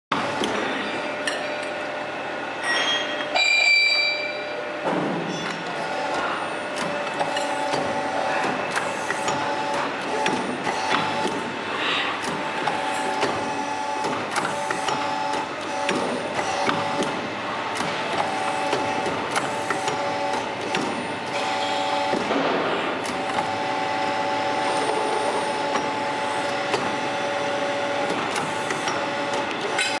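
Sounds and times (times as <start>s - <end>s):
hydraulic machine hum: 0.1s - 30.0s
metallic clanks and clicks: 5.3s - 11.4s.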